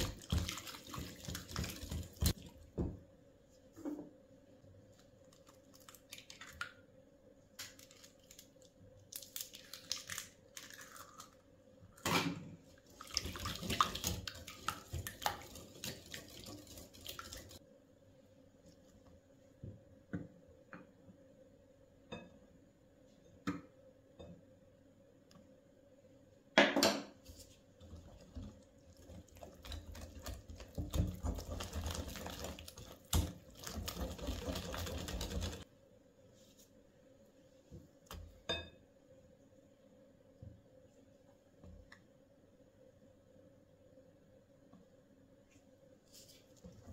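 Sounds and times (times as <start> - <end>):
whisk beating against glass: 29.3 - 35.6.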